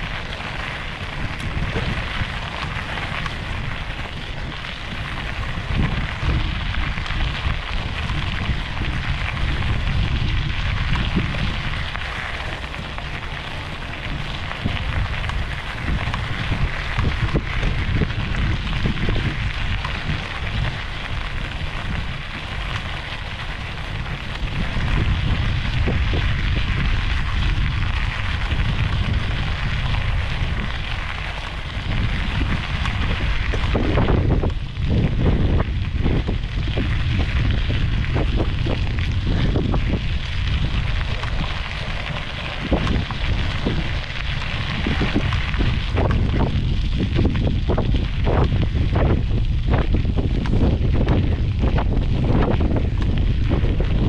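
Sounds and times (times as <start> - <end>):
wind buffeting microphone: 0.0 - 54.0.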